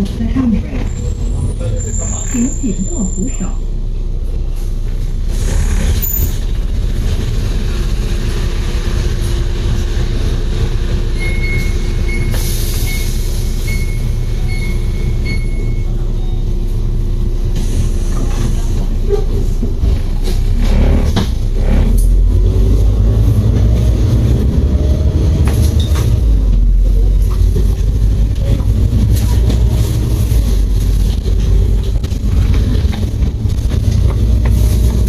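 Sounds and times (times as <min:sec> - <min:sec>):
bus engine idling: 0:00.0 - 0:35.0
short high beeps: 0:13.7 - 0:15.9.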